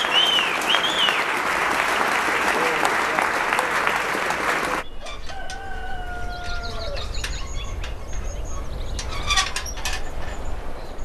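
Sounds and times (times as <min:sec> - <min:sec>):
applause: 0:00.0 - 0:04.8
rooster crowing: 0:05.0 - 0:07.3
small birds chirping: 0:06.1 - 0:11.0.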